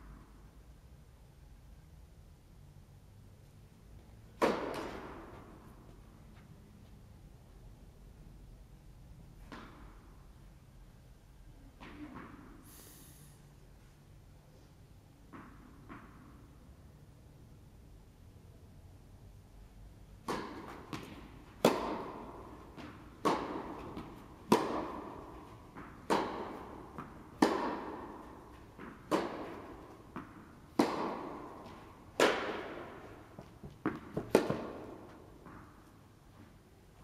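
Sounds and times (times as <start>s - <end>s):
racket hitting tennis ball: 4.3s - 6.0s, 20.2s - 36.0s
tennis ball bouncing: 4.3s - 6.0s, 20.2s - 36.0s.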